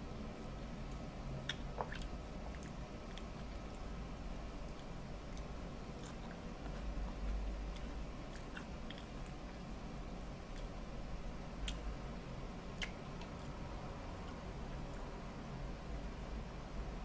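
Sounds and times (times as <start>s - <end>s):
person chewing: 0.4s - 3.9s, 4.6s - 10.8s, 12.7s - 15.1s
mouth clicks: 12.8s - 13.3s.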